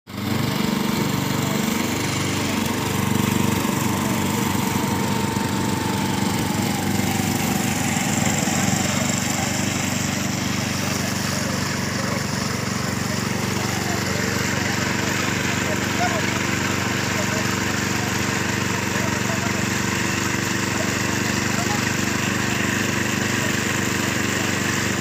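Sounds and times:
small engine chugging: 0.1s - 25.0s.

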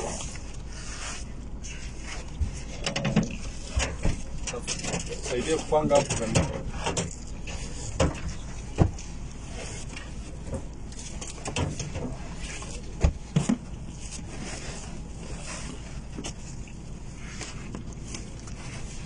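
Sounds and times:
steady low hum: 0.0s - 19.0s
sharp knocks and thumps: 5.9s - 9.1s, 12.9s - 13.7s.

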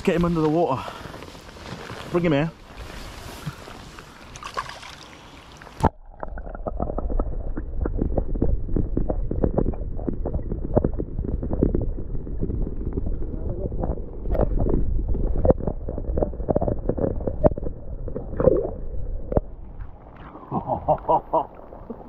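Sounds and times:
underwater rumble: 0.0s - 22.0s
rapid bubbling and clicking: 1.1s - 22.0s
wind on microphone: 7.0s - 19.3s.

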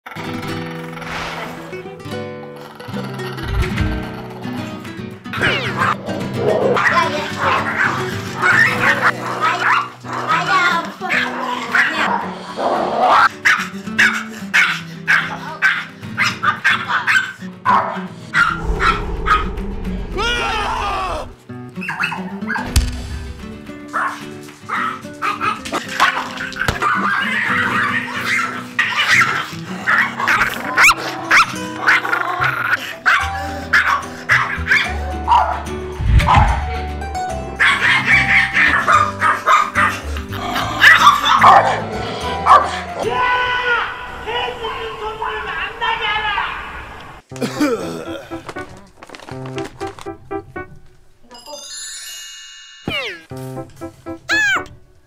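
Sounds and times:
low rumble: 3.4s - 4.1s, 18.5s - 21.4s, 36.0s - 37.0s
small dog barking: 5.4s - 10.4s, 13.1s - 19.4s, 21.8s - 22.6s, 23.9s - 32.2s, 33.0s - 35.6s, 37.6s - 40.1s, 40.7s - 42.8s
light background music: 21.8s - 43.1s, 47.4s - 52.6s, 53.2s - 55.0s.

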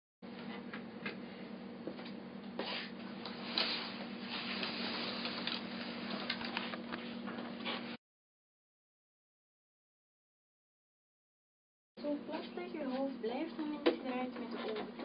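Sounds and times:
steady low hum: 0.3s - 8.0s
rustling and handling noise: 2.6s - 8.0s.

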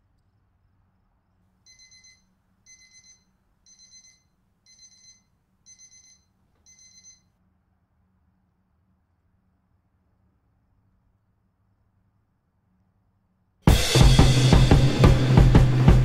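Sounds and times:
smartphone alarm beeping: 1.7s - 7.2s.

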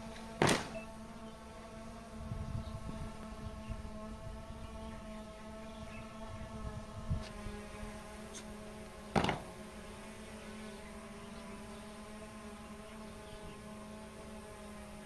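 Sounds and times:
sharp knock: 0.4s - 0.7s, 9.2s - 9.5s.

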